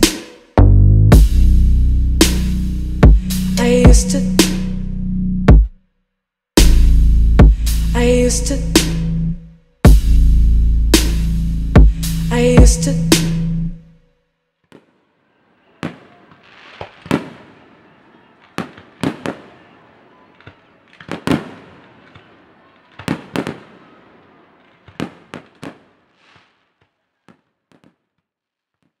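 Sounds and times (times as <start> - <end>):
fireworks bursting bangs: 0.0 - 0.6, 14.7 - 28.2.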